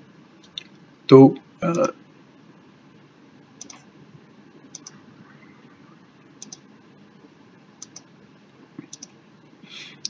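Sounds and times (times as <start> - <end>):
light room hiss: 0.0 - 10.0
computer mouse clicking: 3.6 - 3.8, 4.7 - 5.0, 6.4 - 6.6, 7.8 - 8.1, 8.8 - 9.2.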